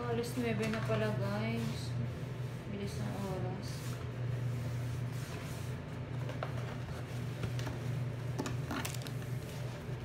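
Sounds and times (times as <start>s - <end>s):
plastic film crinkling: 8.5s - 9.5s.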